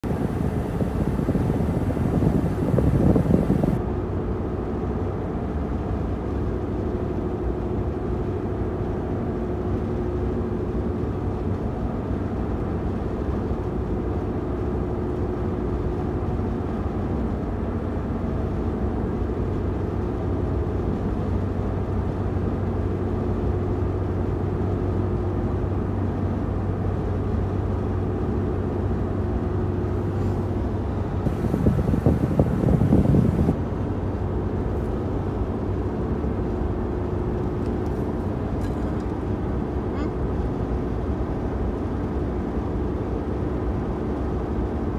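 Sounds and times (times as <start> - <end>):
vehicle cabin hum: 0.0 - 3.8, 27.0 - 42.1
air blowing from vent: 0.0 - 44.9.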